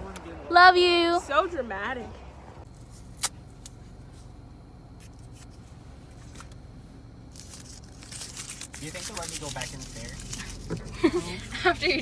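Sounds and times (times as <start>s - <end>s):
car cabin engine hum: 0.0s - 12.0s
paper wristband crinkling: 7.3s - 12.0s.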